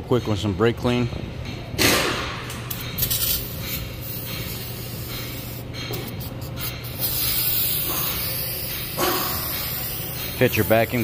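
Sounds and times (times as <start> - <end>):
aerosol can spraying hiss: 6.6 - 11.0.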